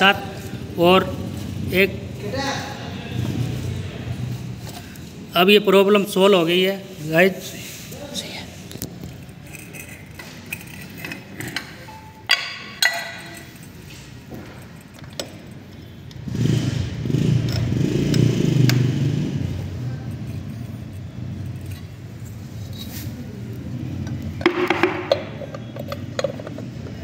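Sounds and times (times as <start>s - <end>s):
vehicle engine rumbling: 0.0s - 5.4s, 13.4s - 27.0s
metal clinks of tools: 9.0s - 16.0s, 25.0s - 27.0s.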